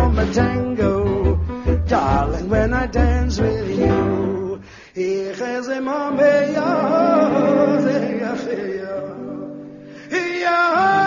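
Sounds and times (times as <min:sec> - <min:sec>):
band music: 0:00.0 - 0:04.7, 0:06.1 - 0:10.0
guitar: 0:00.0 - 0:11.0
man singing: 0:00.0 - 0:11.0.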